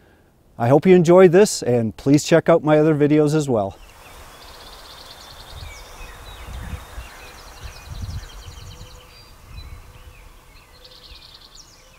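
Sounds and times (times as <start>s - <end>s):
songbirds singing: 2.4s - 11.9s
wind gusting: 3.7s - 11.9s.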